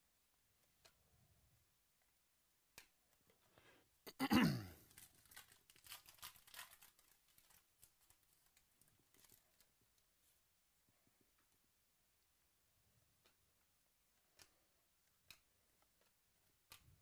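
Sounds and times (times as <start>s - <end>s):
wrapper crinkling: 4.8s - 9.7s
foil pack tearing open: 4.9s - 8.2s.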